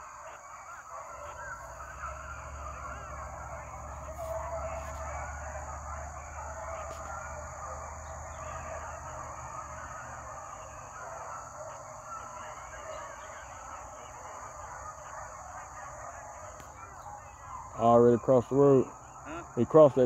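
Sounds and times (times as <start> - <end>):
hounds baying: 0.0 - 20.0.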